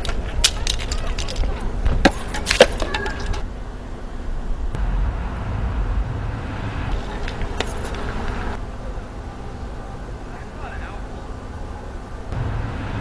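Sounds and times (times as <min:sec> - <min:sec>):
low rumble of street traffic: 0:00.0 - 0:13.0.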